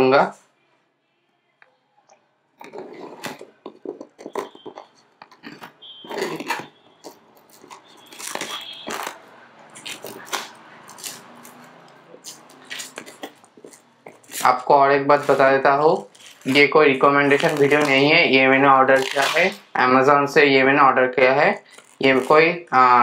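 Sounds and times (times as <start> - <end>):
shrink-wrap crinkling and crackling: 2.6 - 19.7, 21.5 - 22.5.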